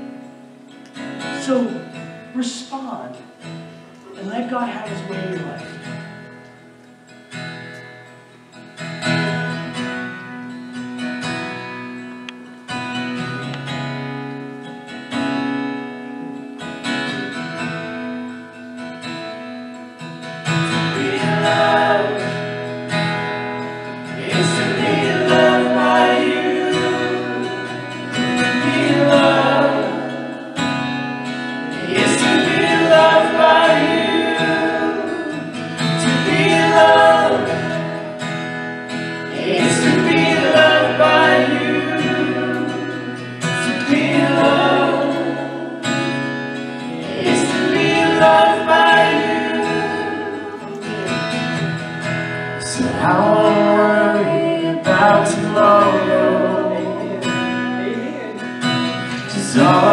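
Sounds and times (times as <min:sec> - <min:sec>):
people singing: 0:20.4 - 0:51.8, 0:52.6 - 0:59.9.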